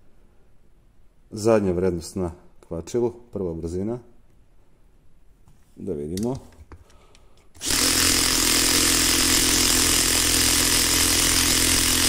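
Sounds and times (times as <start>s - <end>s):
drill driving screw into wood: 7.6s - 12.0s.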